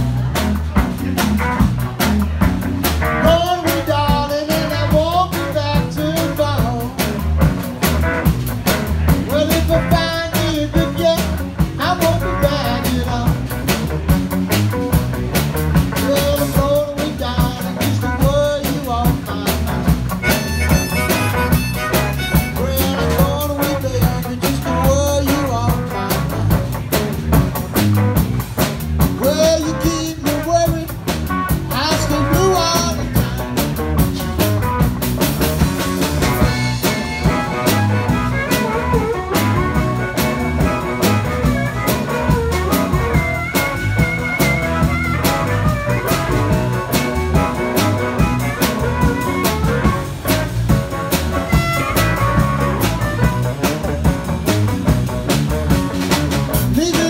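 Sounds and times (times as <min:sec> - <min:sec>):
blues band playing: 0:00.0 - 0:57.0
harmonica lead line: 0:20.1 - 0:23.9, 0:35.7 - 0:54.7.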